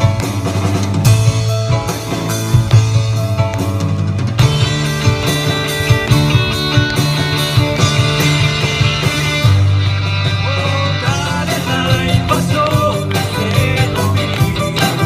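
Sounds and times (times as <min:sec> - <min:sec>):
drums: 0:00.0 - 0:15.0
electric guitar: 0:00.0 - 0:15.0
keyboard: 0:00.0 - 0:15.0
vocalists singing: 0:10.4 - 0:15.0.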